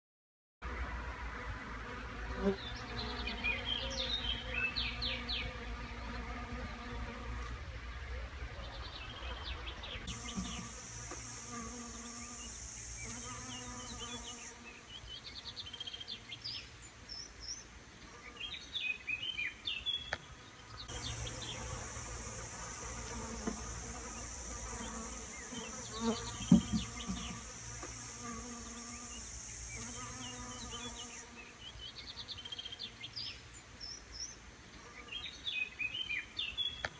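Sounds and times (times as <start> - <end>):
honeybees buzzing: 0.8 - 16.1, 20.8 - 32.8.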